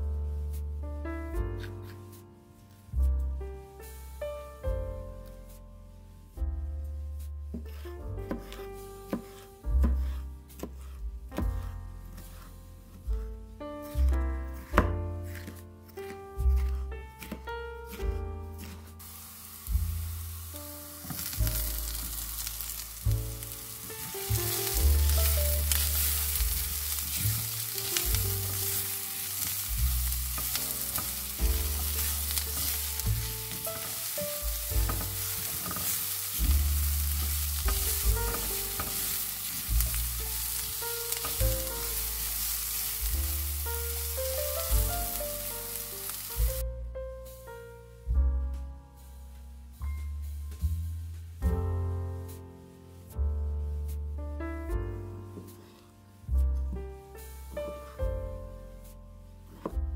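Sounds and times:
spatula stirring and scraping: 7.2 - 46.6
background music with bass line: 16.3 - 55.6
vegetables sizzling in oil: 18.6 - 46.6.

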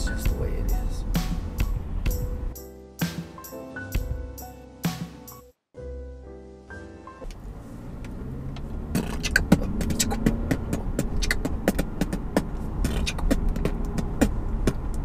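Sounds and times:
man beatboxing: 0.0 - 1.1, 9.0 - 15.0
car low rumble: 0.0 - 2.6, 7.2 - 15.0.

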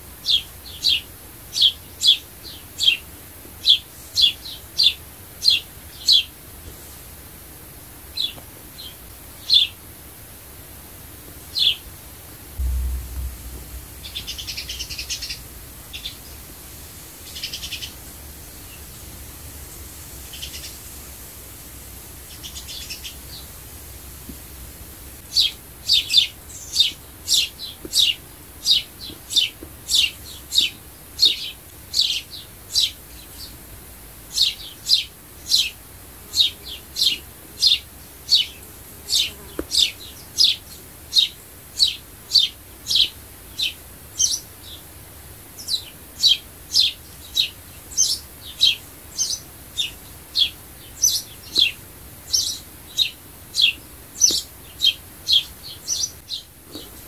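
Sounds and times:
sparrow chirping: 0.2 - 3.0, 12.6 - 16.4, 17.2 - 18.8, 25.3 - 33.5, 34.3 - 44.8, 45.6 - 56.5.

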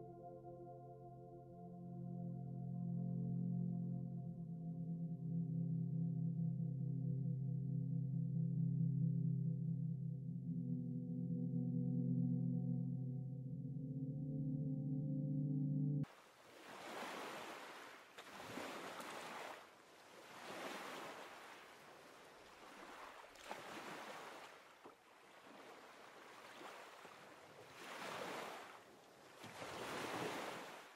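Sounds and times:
soft surf washing ashore: 16.0 - 30.9.

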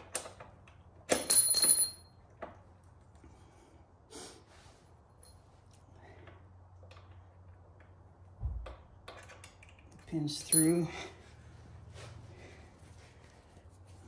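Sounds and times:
person breathing: 3.2 - 4.9, 10.9 - 13.6.

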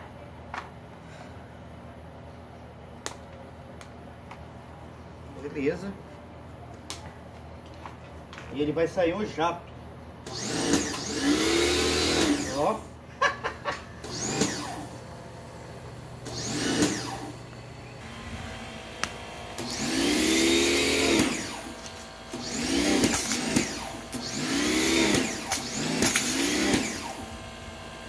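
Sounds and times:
pressure washer motor whining: 10.2 - 12.9, 13.9 - 28.0.

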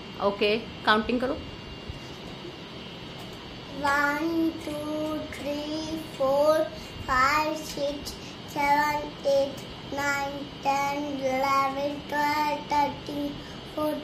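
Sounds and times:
young child chanting: 3.7 - 14.0.

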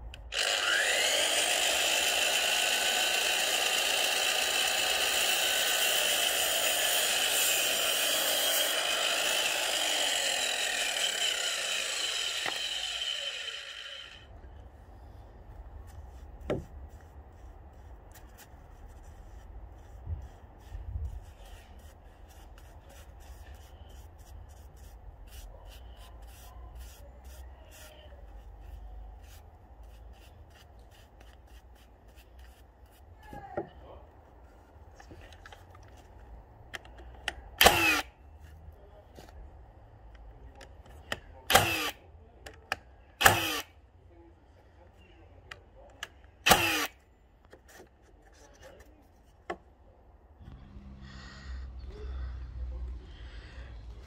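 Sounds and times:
mitre saw cutting wood: 0.2 - 14.3, 37.6 - 38.1, 41.5 - 42.0, 43.2 - 43.7, 46.4 - 47.0
paintbrush rubbing on wood: 15.7 - 33.2.

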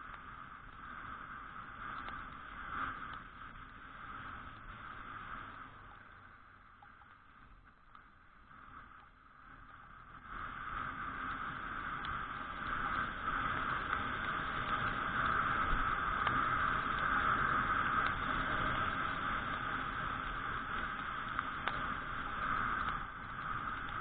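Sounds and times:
scooter riding on wet road: 0.0 - 24.0.

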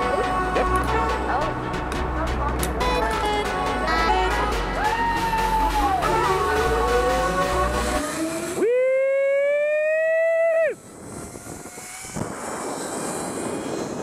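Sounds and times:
zipline pulleys whining on cable: 4.9 - 14.0.

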